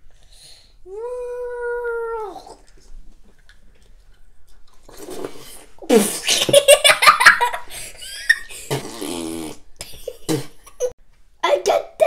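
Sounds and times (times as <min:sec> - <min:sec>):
vocal noises of disgust: 0:08.5 - 0:09.7.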